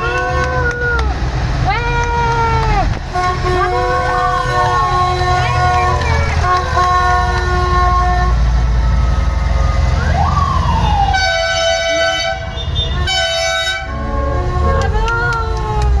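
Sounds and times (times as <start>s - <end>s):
vehicle engines rumbling: 0.0s - 16.0s
vehicle horn blasts: 3.1s - 8.4s, 11.1s - 15.1s
siren-like whoop: 9.9s - 11.4s.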